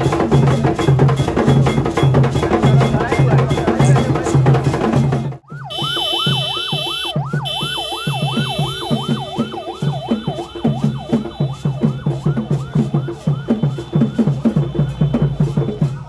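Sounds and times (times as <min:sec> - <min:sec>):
steady drumbeat: 0:00.0 - 0:16.0
police siren yelping: 0:05.4 - 0:16.0.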